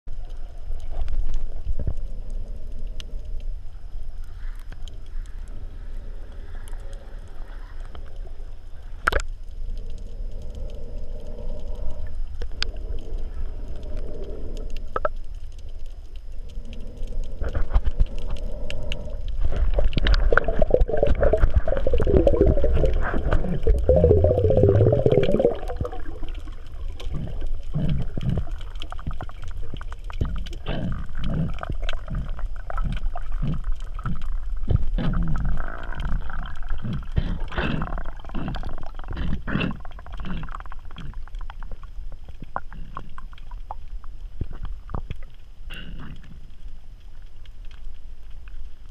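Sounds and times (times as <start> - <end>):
underwater water rumble: 0.1 - 48.9
sharp underwater clicks: 8.9 - 48.5.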